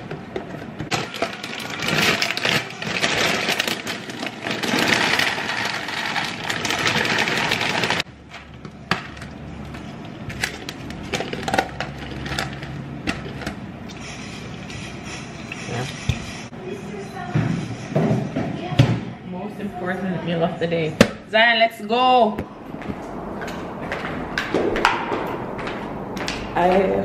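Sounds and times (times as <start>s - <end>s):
cereal rattling into container: 0.9s - 8.1s
plastic bag crinkling: 0.9s - 8.1s.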